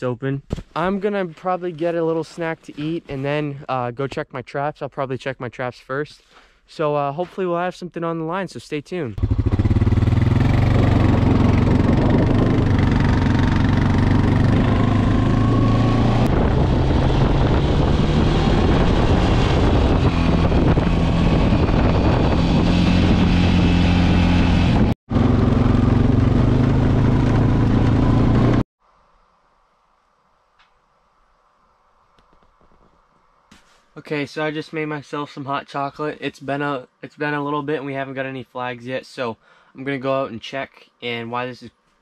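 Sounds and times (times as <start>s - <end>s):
atv engine running: 9.2s - 28.6s.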